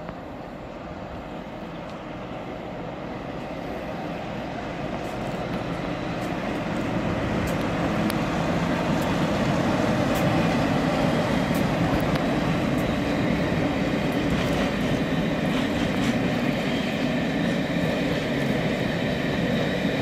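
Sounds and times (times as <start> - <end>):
diesel locomotive engine running: 0.0 - 20.0
train wheels rumbling: 0.0 - 20.0.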